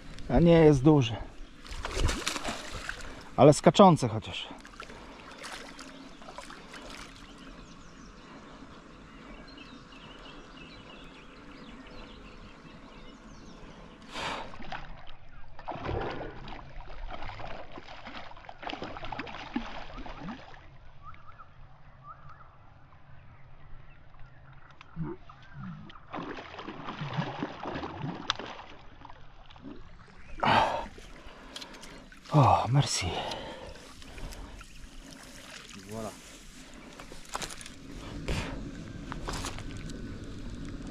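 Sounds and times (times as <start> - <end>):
water sloshing and splashing: 0.0 - 7.5, 14.3 - 21.0, 25.3 - 40.9
low steady outdoor noise: 0.0 - 40.9
faint bird chirps: 21.0 - 26.1.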